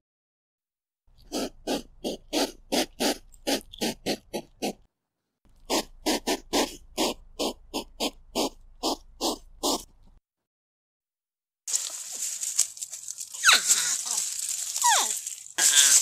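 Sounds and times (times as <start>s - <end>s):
hedgehog giving short calls: 1.2s - 4.8s, 5.6s - 10.2s, 13.4s - 16.0s.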